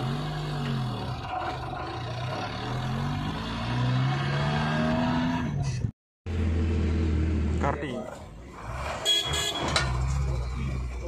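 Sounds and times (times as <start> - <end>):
vehicle engine accelerating: 0.0 - 5.7.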